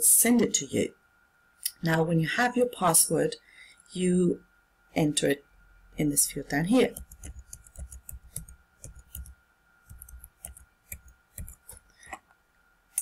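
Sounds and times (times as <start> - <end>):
keyboard typing clicks: 6.8 - 9.3, 9.9 - 12.2.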